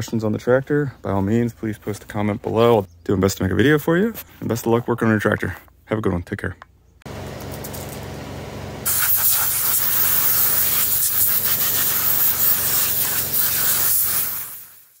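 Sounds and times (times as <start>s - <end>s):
compressed air blow gun hissing: 8.9s - 15.0s.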